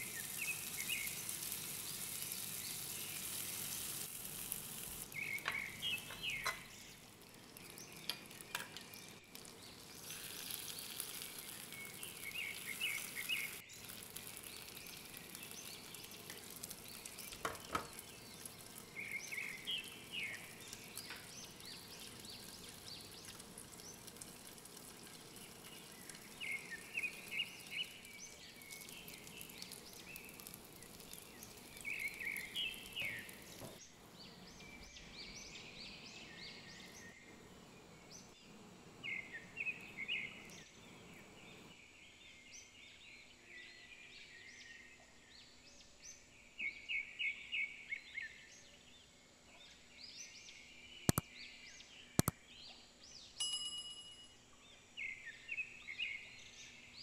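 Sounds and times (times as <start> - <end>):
meat sizzling on grill pan: 0.0 - 33.8
sharp clicks: 52.2 - 52.4.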